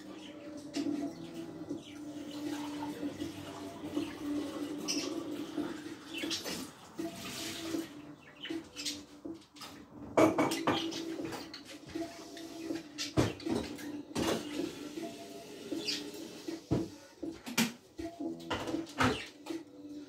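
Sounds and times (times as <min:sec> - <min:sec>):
budgerigars chattering and chirping: 0:00.2 - 0:06.7, 0:08.2 - 0:09.4, 0:10.4 - 0:11.6, 0:15.7 - 0:16.4.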